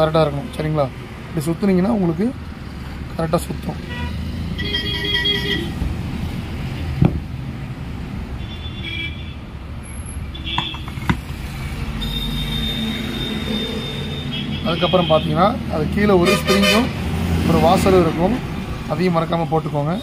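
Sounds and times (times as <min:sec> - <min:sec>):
road traffic rumbling: 0:00.0 - 0:20.0
vehicle horn toots: 0:03.9 - 0:05.8, 0:10.4 - 0:11.0, 0:12.0 - 0:15.2, 0:16.2 - 0:16.9
sharp knocks on metal: 0:10.5 - 0:11.3.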